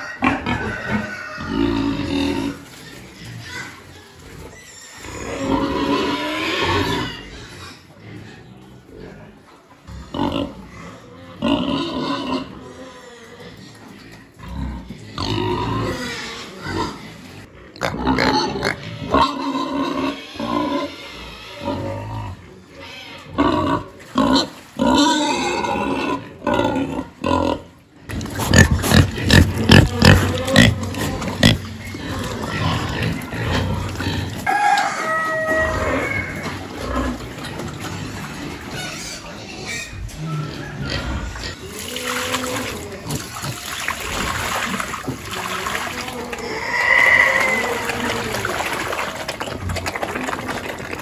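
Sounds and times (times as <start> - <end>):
pigs squealing and grunting: 0.0 - 51.0
feed poured from bucket: 41.6 - 51.0
pigs eating smacking clicks: 47.4 - 51.0.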